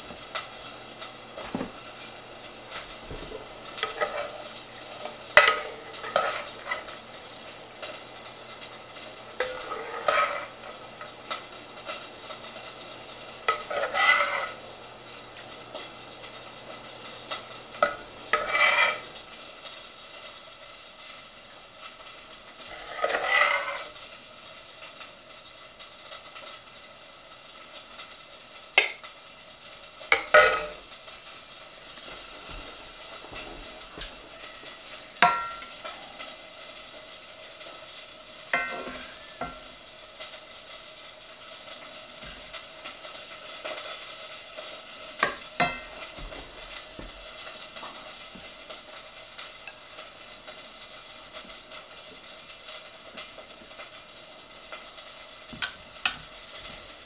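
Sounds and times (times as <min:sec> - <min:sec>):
food sizzling in a pan: 0:00.0 - 0:57.0
spoons scraping and clinking dishes: 0:03.1 - 0:04.4, 0:05.4 - 0:06.9, 0:09.4 - 0:10.6, 0:13.5 - 0:14.6, 0:17.8 - 0:19.1, 0:22.7 - 0:24.0, 0:30.1 - 0:30.8, 0:32.0 - 0:36.0.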